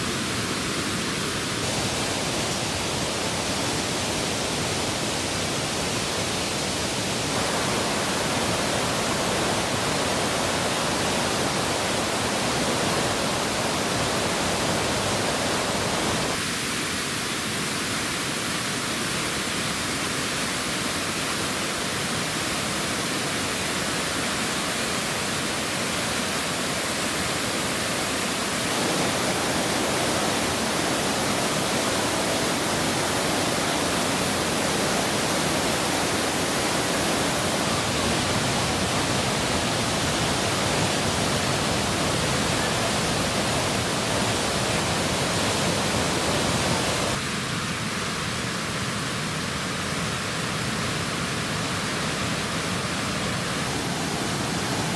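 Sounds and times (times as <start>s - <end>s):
waterfall water rushing: 0.0s - 54.9s.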